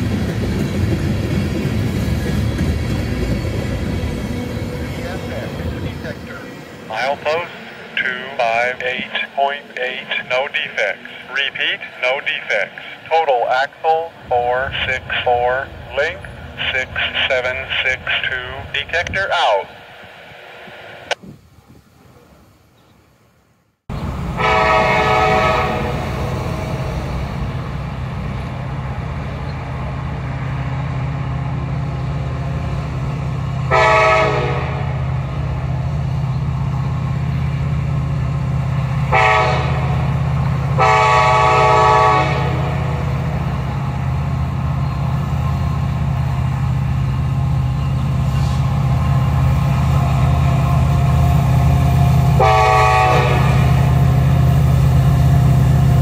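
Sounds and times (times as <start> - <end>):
train rumble: 0.0 - 23.2, 23.9 - 56.0
locomotive air horn blasts: 24.4 - 27.0, 33.7 - 35.0, 39.1 - 40.0, 40.8 - 43.0, 52.4 - 53.8.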